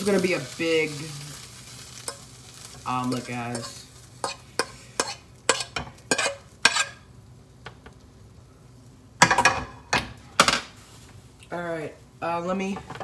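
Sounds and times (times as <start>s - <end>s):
utensil scraping frying pan: 0.0s - 7.1s.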